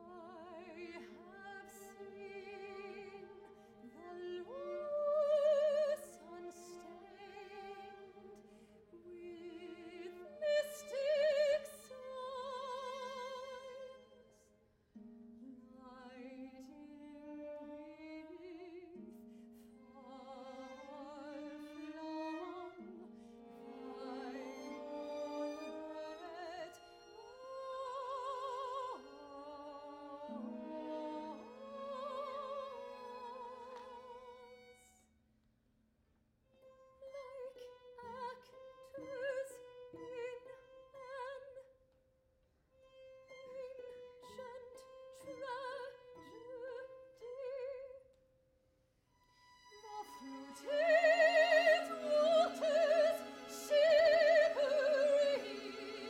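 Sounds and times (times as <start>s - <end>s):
soprano singing with vibrato: 0.0s - 8.4s, 9.0s - 14.4s, 15.4s - 19.0s, 19.8s - 34.7s, 43.5s - 48.0s, 49.8s - 56.0s
string orchestra holding chords: 20.3s - 34.6s, 49.6s - 56.0s.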